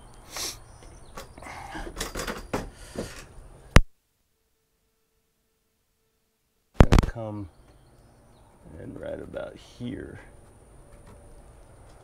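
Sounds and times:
knocks and rustling: 0.8s - 3.3s.

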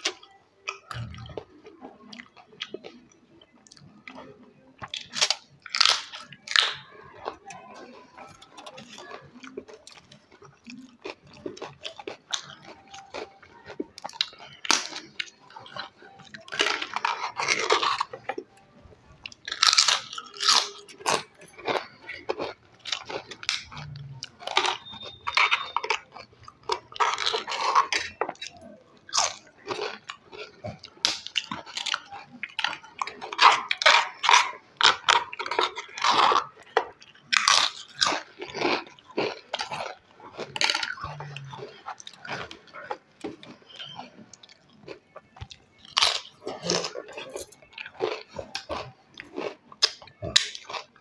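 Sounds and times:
crunching while chewing: 0.0s - 51.0s.

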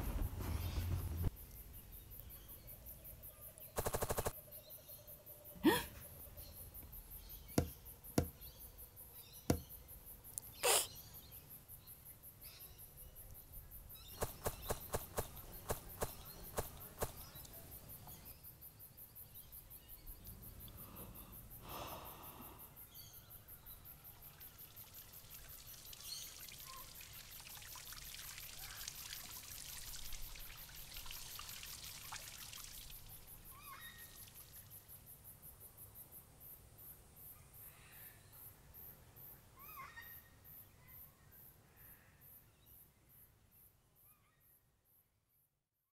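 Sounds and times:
water trickling and spattering: 14.1s - 18.2s, 23.9s - 35.0s.

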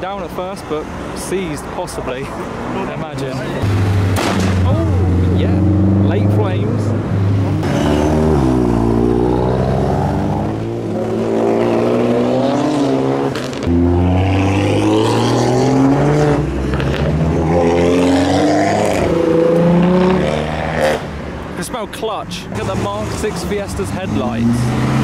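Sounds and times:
car engine accelerating: 3.6s - 21.1s.

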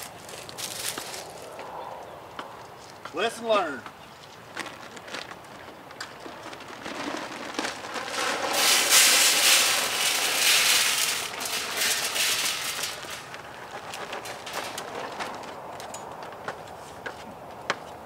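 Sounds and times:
bag rustling and clicks: 4.5s - 16.7s
corn kernels pouring: 6.2s - 15.5s.

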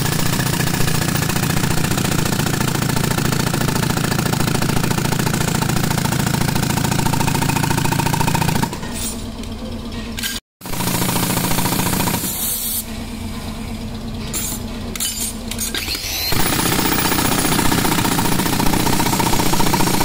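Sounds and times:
jackhammer hammering concrete: 0.0s - 8.8s, 10.6s - 12.4s, 15.9s - 20.0s.

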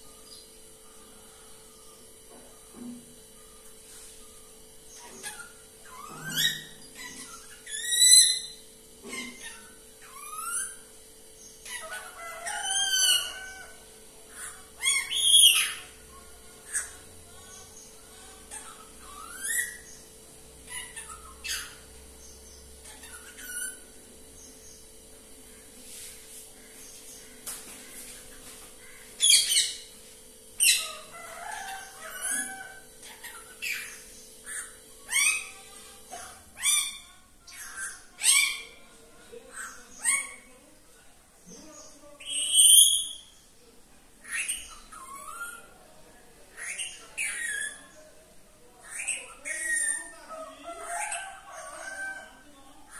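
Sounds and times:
parakeet calling: 4.9s - 24.8s, 26.6s - 30.0s, 30.6s - 40.6s, 44.2s - 45.8s, 46.5s - 48.0s, 48.8s - 52.9s.

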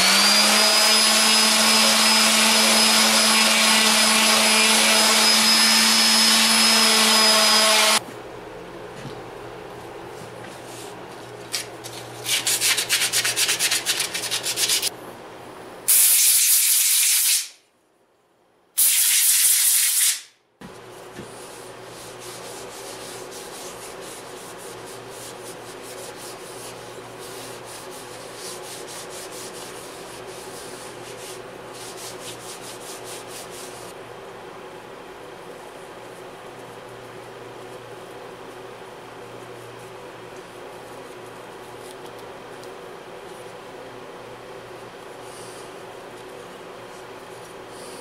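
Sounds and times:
sanding wood on sandpaper: 12.2s - 14.9s, 21.4s - 34.0s
faint rag wiping: 20.9s - 34.0s.

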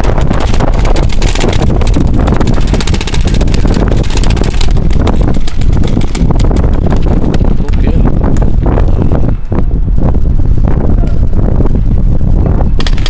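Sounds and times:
paintball markers firing: 0.0s - 7.8s, 12.8s - 13.0s
wind buffeting microphone: 0.0s - 13.0s.

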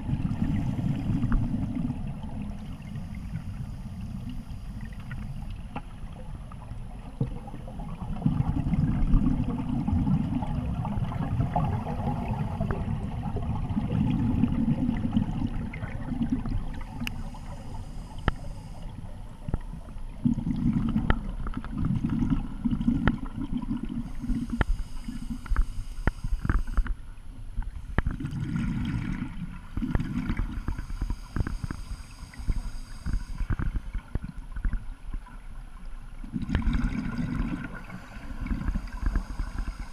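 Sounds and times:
regulator bubbles underwater: 0.0s - 39.9s
small clicks underwater: 8.4s - 13.0s, 15.4s - 27.0s, 27.6s - 39.9s.

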